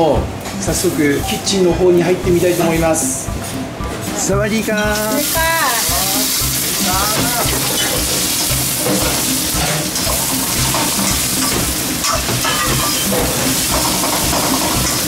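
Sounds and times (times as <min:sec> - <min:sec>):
food sizzling in a pan: 0:04.9 - 0:15.0.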